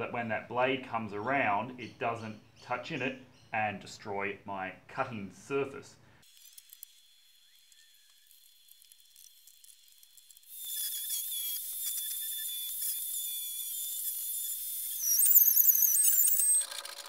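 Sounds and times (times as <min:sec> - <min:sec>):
rotary tool whining: 0:06.2 - 0:17.0.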